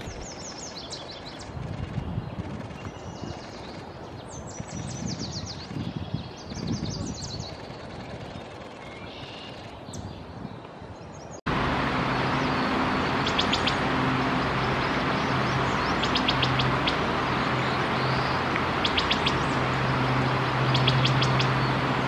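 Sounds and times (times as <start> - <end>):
low hum: 11.5 - 22.0
steady rushing noise: 11.5 - 22.0
bird calling high notes: 11.8 - 22.0.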